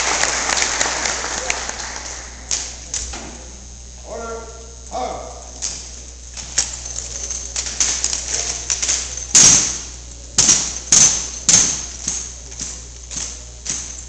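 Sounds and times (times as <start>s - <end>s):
rifles slapping and knocking: 5.6s - 14.0s.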